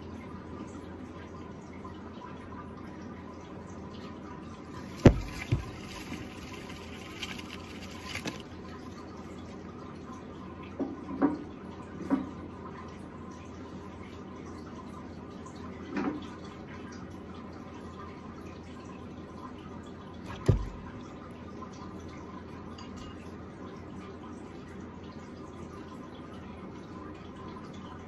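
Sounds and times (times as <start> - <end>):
sharp knocks: 5.0 - 6.1, 20.3 - 21.0.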